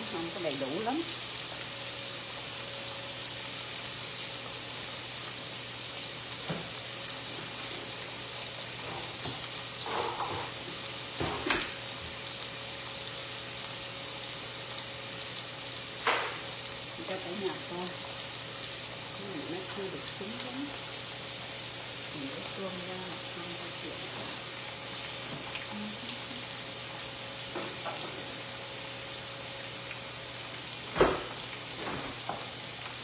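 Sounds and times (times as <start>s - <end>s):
chicken sizzling in oil: 0.0s - 33.0s.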